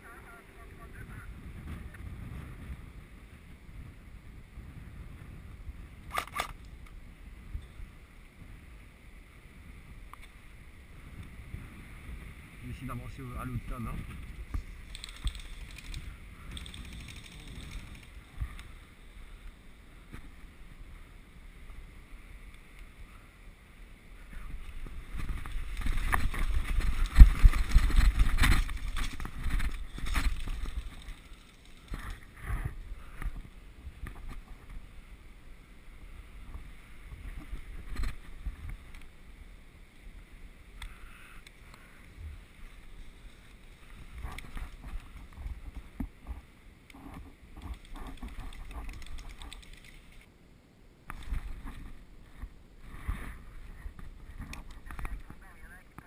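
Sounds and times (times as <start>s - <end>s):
microphone rumble and rustling: 0.0s - 23.2s, 23.9s - 40.3s, 41.8s - 50.3s, 51.0s - 56.0s
wind buffeting and crackle: 0.0s - 50.3s, 51.0s - 56.0s.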